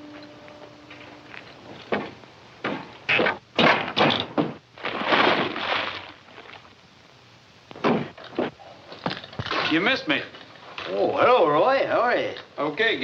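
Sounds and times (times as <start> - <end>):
object crashing into door: 1.9 - 5.6.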